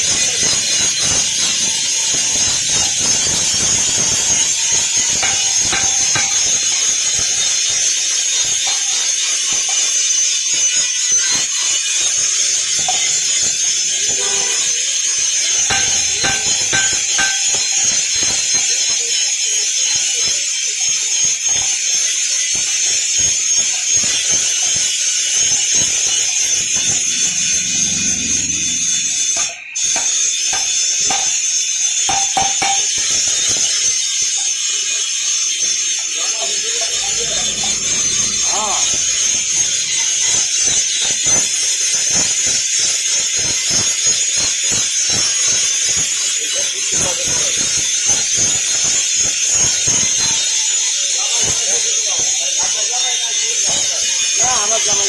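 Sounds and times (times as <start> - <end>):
forge hissing: 0.0 - 55.0
hammer striking iron on anvil: 5.2 - 6.6, 15.6 - 17.8, 30.0 - 31.4, 32.1 - 32.9
fast pulsing knock: 15.7 - 17.7.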